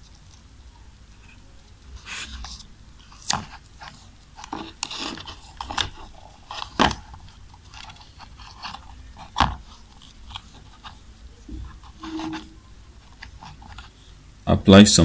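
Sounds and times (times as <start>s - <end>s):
tape crinkling: 2.1s - 14.1s.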